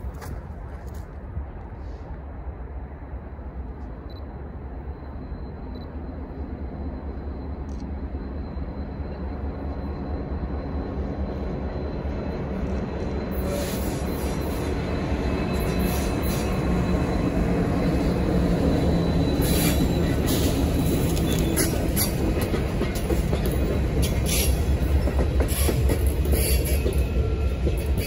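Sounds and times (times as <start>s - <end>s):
diesel locomotive rumbling: 0.0s - 28.0s
rail noise: 0.0s - 28.0s
wheel squeal: 9.9s - 22.2s.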